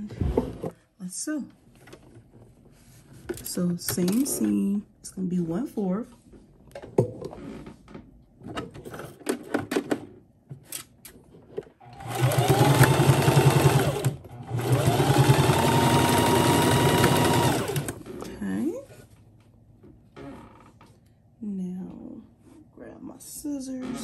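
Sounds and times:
electric sewing machine stitching: 11.8 - 18.0.

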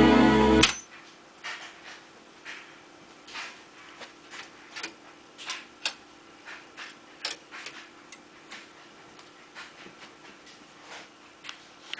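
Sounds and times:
low hum: 0.0 - 0.9.

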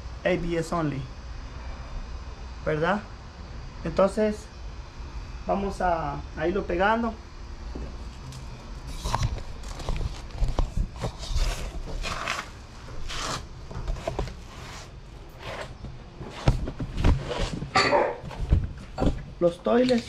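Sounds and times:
scuffs on concrete floor: 9.4 - 19.2.

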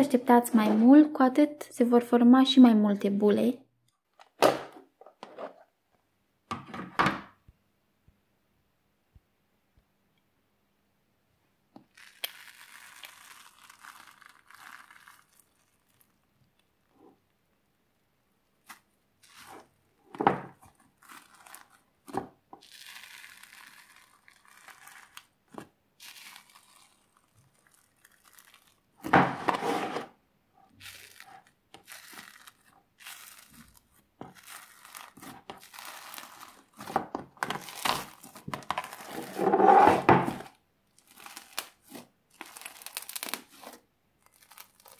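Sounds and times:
slime tearing and crackling: 11.9 - 16.2, 18.6 - 19.7, 20.5 - 29.1, 30.8 - 39.4, 40.4 - 44.9
slime squishing: 11.9 - 16.9, 18.6 - 29.1, 30.7 - 39.5, 40.4 - 44.9.

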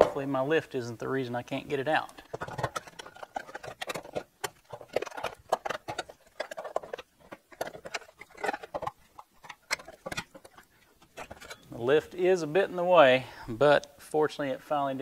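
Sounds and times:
exhaust pipe clinking and scraping: 1.8 - 12.1.

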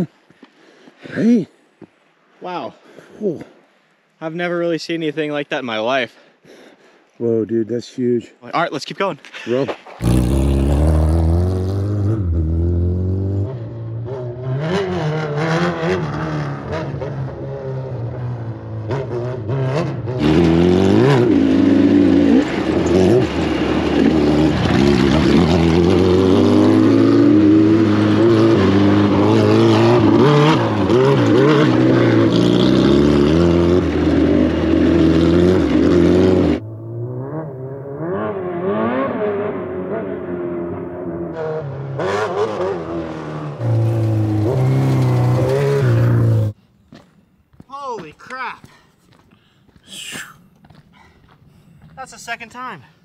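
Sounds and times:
motorcycle engines revving: 9.8 - 46.6.

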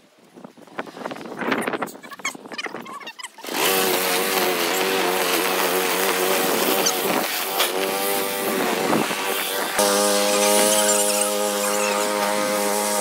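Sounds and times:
lawn mower engine running: 3.4 - 13.0.

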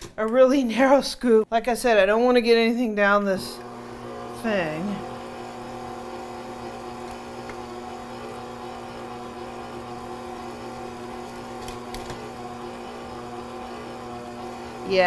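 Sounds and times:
stand mixer motor hum: 3.5 - 15.0.

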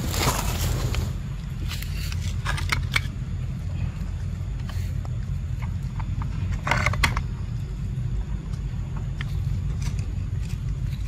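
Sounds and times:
dry leaves crackling: 0.0 - 2.2
steady low rumble: 0.0 - 11.0.

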